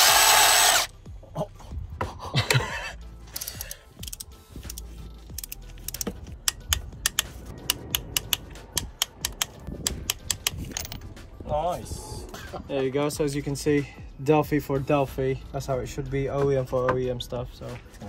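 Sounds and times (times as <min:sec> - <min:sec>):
ratchet wrench clicking: 0:03.3 - 0:11.0.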